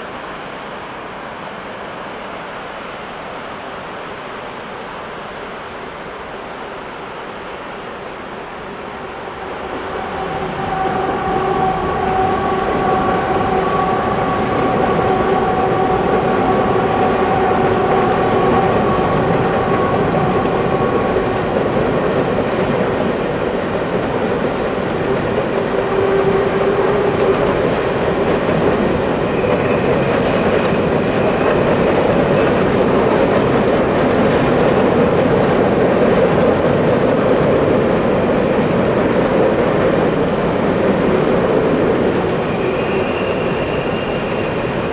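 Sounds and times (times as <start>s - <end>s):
train rumbling on rails: 0.0s - 44.9s.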